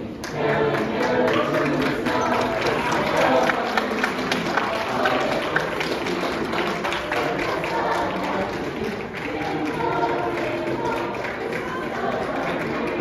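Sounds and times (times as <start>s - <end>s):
carolers singing: 0.0s - 13.0s.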